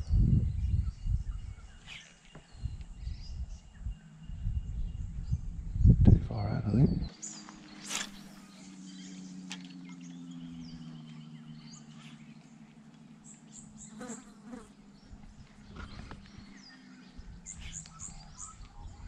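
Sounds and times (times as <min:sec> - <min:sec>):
faint bird chirps: 0:00.0 - 0:19.0
fly buzzing: 0:13.8 - 0:14.8.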